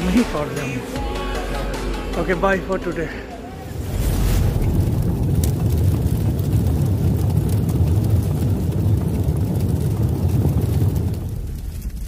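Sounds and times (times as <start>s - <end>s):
deep rumbling: 3.3s - 12.0s.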